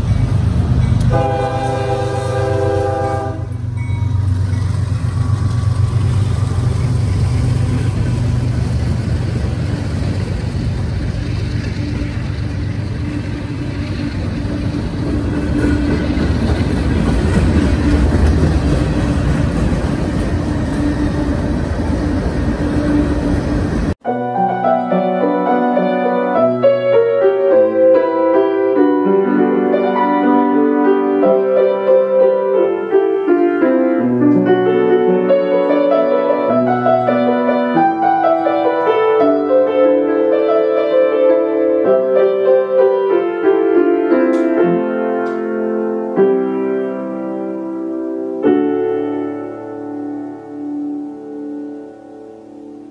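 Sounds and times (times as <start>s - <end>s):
piano melody: 0.0s - 52.9s.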